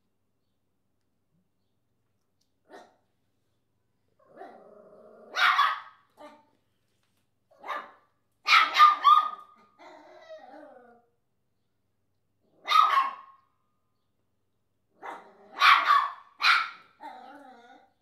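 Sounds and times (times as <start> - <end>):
small dog yapping: 5.3 - 6.5, 7.5 - 10.5, 12.6 - 13.4, 15.0 - 17.8.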